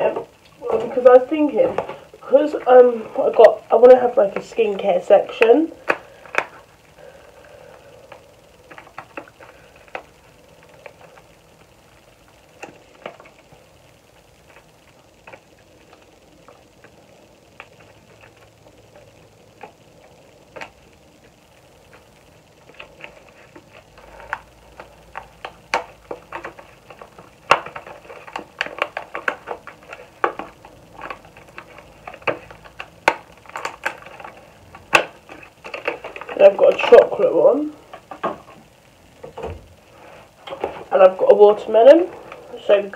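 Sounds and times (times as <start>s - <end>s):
boxes and bottles clicking and rustling: 21.9s - 39.7s.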